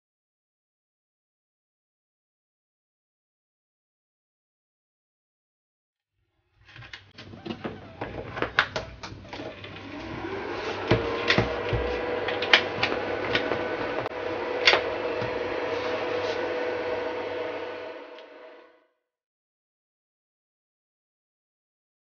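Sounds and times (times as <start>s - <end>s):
cooling fan whine: 7.2s - 18.6s.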